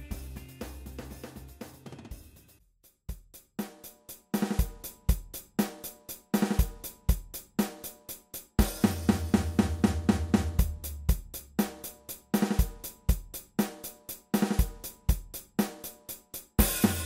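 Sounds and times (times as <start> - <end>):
background music: 0.0 - 2.6
steady drum beat: 0.0 - 17.0.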